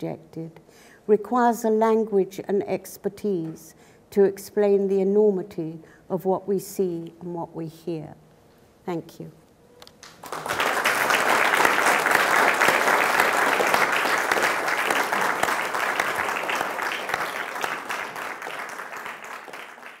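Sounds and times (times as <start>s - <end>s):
audience applauding: 10.0s - 20.0s.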